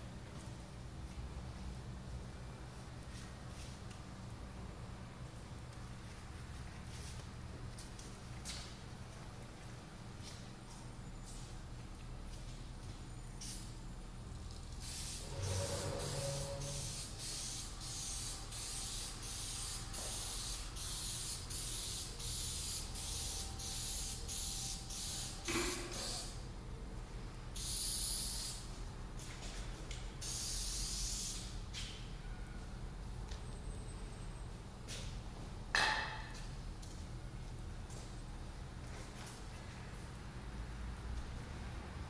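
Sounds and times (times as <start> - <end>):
aerosol spray hissing: 14.8 - 26.3.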